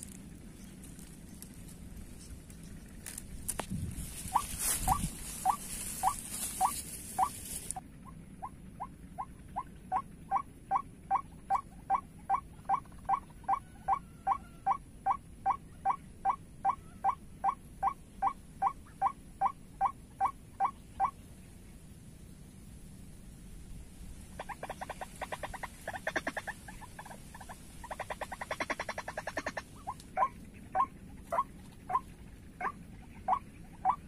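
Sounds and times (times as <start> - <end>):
waterhen calling: 4.2 - 7.8, 9.2 - 21.2, 24.3 - 34.0.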